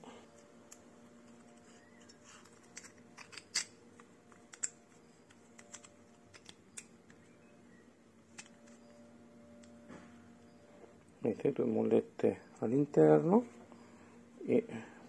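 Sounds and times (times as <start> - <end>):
faint steady hum: 0.0 - 15.0
small metal parts clicking: 0.7 - 7.2.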